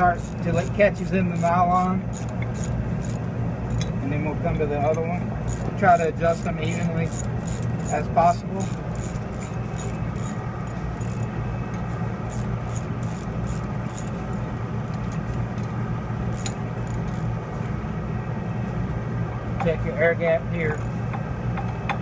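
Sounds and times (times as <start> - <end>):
socket ratchet clicking: 0.0 - 4.0, 5.5 - 15.7, 16.3 - 17.3
steady low hum: 0.0 - 22.0.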